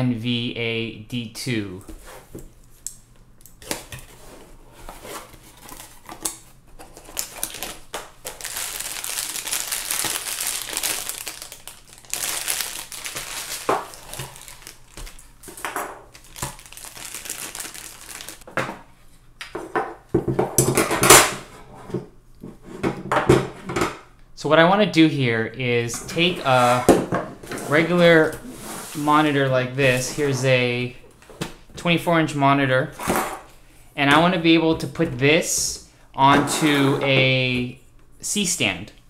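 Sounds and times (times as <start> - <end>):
plastic bag crinkling: 5.5 - 18.5.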